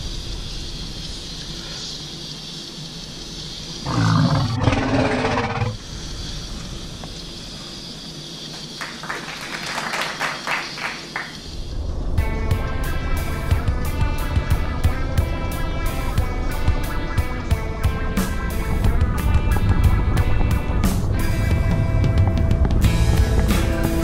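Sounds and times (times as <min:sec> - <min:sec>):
steady hiss inside car: 0:00.0 - 0:03.9, 0:05.8 - 0:12.2.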